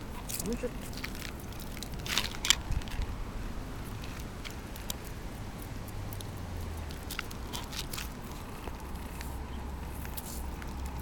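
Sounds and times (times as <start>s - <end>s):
puppy claws tapping on asphalt: 3.8s - 11.0s.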